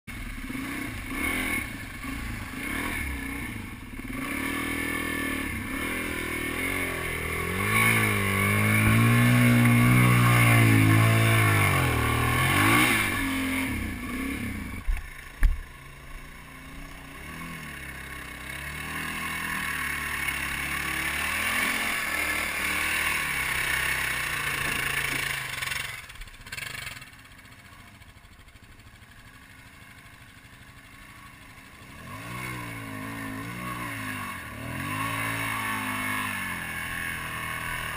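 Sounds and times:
dirt bike engine revving: 0.1 - 37.9.

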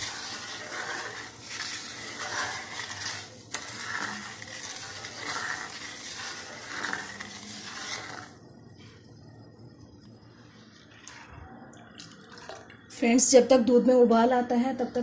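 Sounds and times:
ladle scraping a wok: 0.0 - 8.5.

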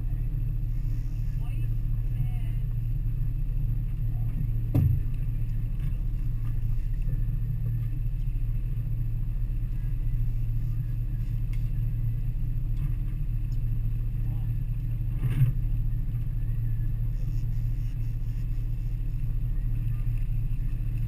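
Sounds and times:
outboard motors running: 0.0 - 21.0
thump: 4.7 - 5.1.

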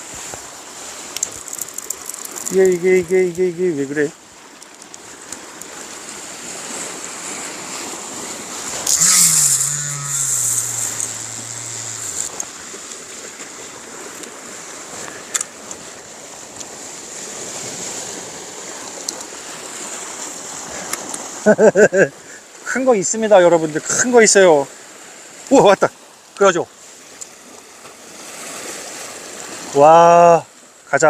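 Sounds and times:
sea waves washing against rocks: 0.1 - 8.9
low falling tone: 8.9 - 12.3.

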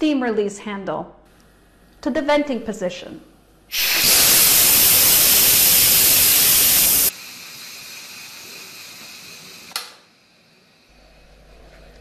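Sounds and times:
steam hissing from release valve: 3.7 - 10.9.

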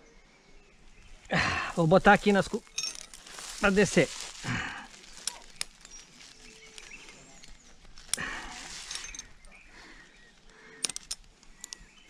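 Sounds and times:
climbing gear rustling: 1.4 - 12.0
carabiner metallic clicks: 5.2 - 6.1, 6.7 - 9.6, 10.8 - 12.0.

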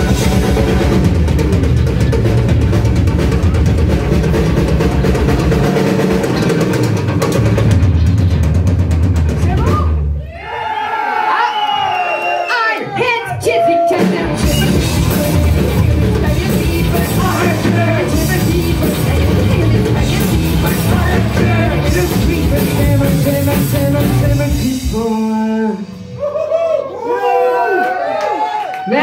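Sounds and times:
live rock band playing: 0.0 - 10.2, 13.3 - 26.2
drums: 0.0 - 27.4
person singing: 13.7 - 26.2
electric guitar: 13.8 - 26.2.

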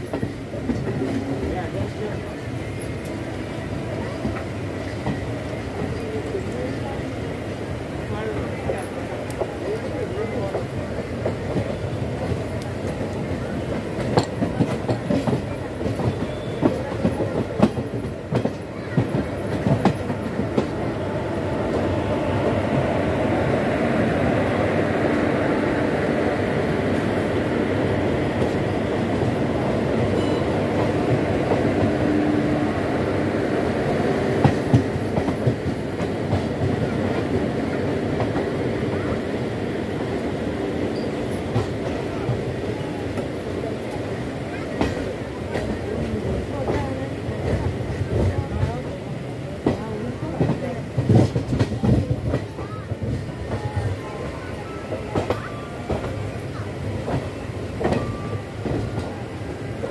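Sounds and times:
train rolling rumble: 0.0 - 59.9
train wheels clacking over rail joints: 8.3 - 20.8, 49.6 - 54.0.

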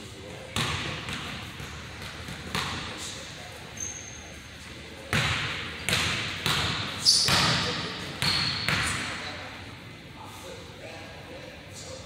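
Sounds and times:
basketball bouncing on hardwood floor: 0.6 - 2.8
short high squeak: 3.8 - 4.3.

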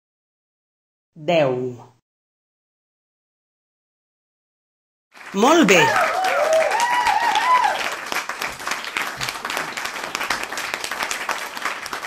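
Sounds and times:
applause: 5.1 - 12.0
voices cheering: 5.4 - 8.0.

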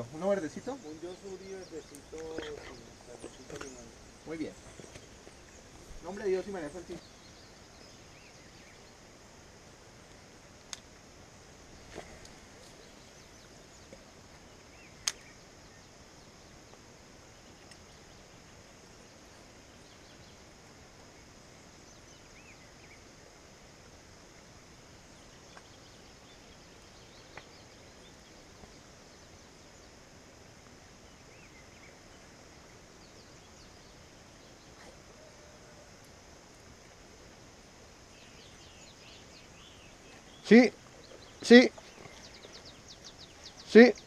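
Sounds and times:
insect buzz: 0.0 - 44.0
sharp clicks: 15.0 - 15.3
faint bird chirps: 31.0 - 36.2, 36.9 - 44.0.

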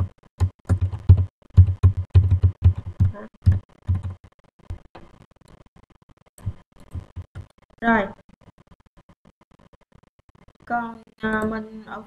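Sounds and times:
computer keyboard typing: 0.0 - 4.2.

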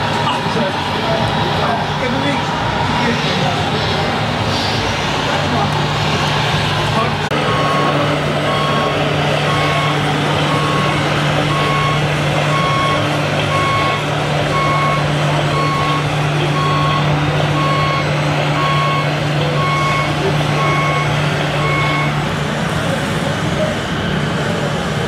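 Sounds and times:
low diesel engine drone: 0.0 - 25.0
reversing beeper: 7.3 - 22.3.

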